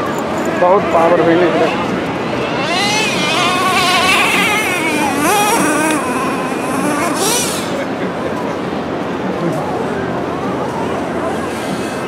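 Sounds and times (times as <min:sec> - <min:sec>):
rc car engine buzzing: 0:01.1 - 0:08.0.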